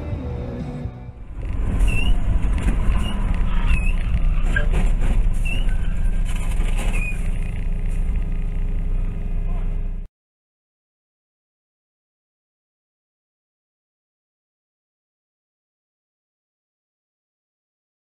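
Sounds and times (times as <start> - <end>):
vehicle engine and road noise: 0.0 - 10.1.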